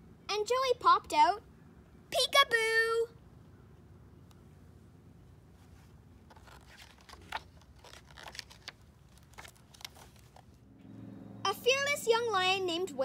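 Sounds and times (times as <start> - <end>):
paper rustling and crinkling: 5.6 - 10.6.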